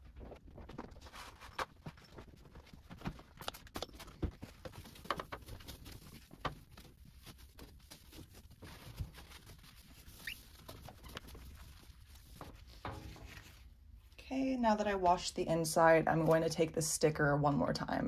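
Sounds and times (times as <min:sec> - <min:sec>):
cloth rubbing on glass: 0:09.8 - 0:13.6.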